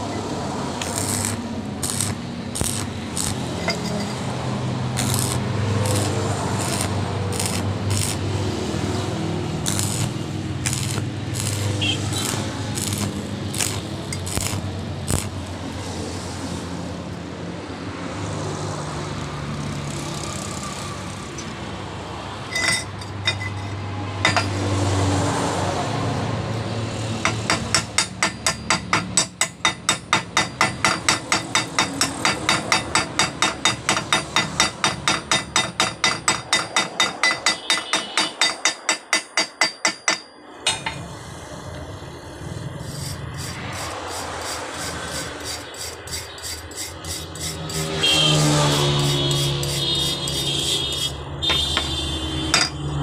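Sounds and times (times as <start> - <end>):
welding arc burning: 0.1 - 15.9, 19.6 - 21.4, 42.1 - 51.7
chipping hammer tapping metal: 0.8 - 4.2, 5.0 - 8.3, 9.6 - 15.5, 27.2 - 41.0.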